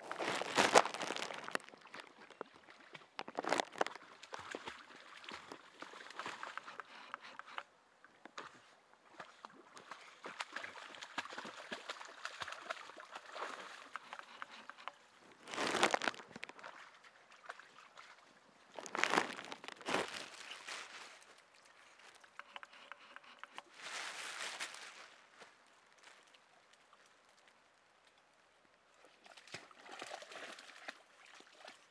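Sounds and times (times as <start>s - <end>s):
dogs splashing in water: 4.1s - 7.5s, 9.1s - 14.9s, 29.1s - 31.9s.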